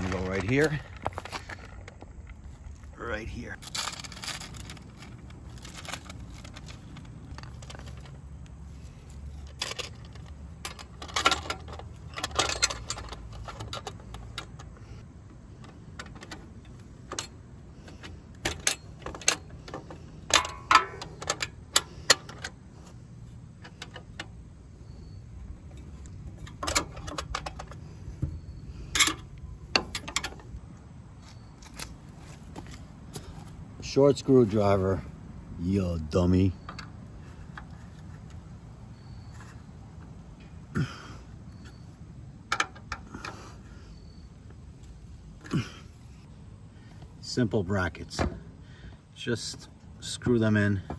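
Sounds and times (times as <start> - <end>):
low steady hum: 0.0 - 50.9
metallic clicks and rattles: 3.6 - 22.6, 23.6 - 30.6.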